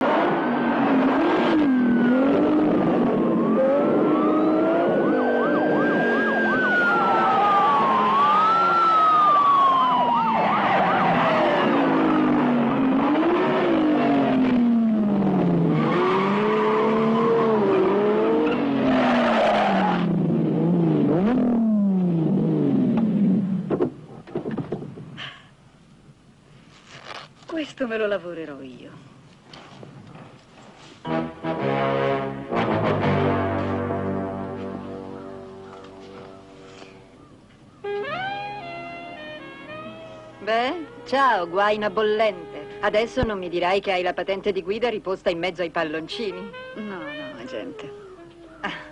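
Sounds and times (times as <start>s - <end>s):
police siren wailing: 0.0s - 20.3s, 37.8s - 42.8s.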